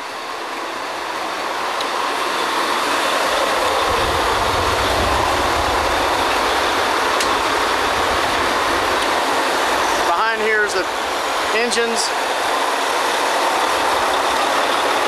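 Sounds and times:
drilling rig machinery rumble: 0.0 - 15.0
deep low rumble: 3.8 - 8.9.

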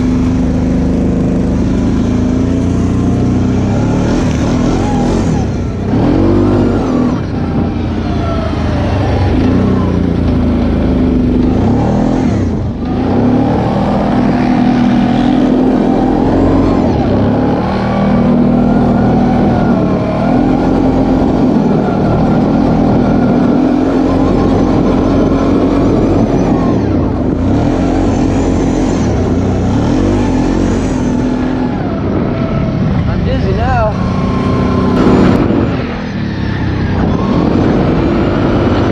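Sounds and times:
quad bike engine revving: 0.0 - 38.9.

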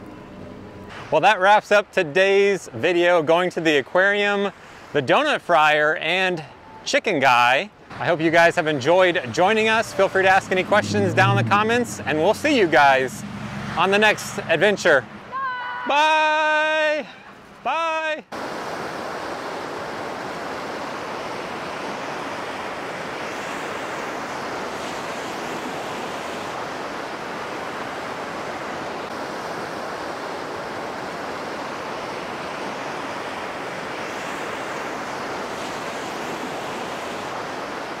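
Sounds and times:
steady rushing noise: 7.8 - 38.0.

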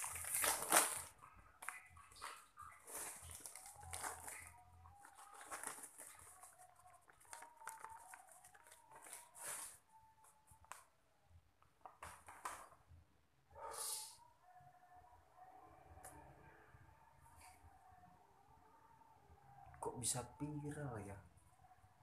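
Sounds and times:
plastic packaging crinkling: 0.0 - 9.9.

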